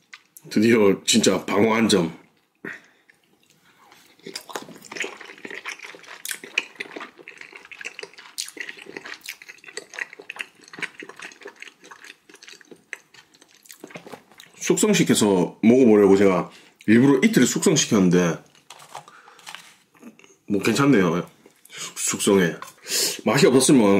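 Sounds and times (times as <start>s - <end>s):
wet chewing mouth sounds: 2.5s - 14.6s.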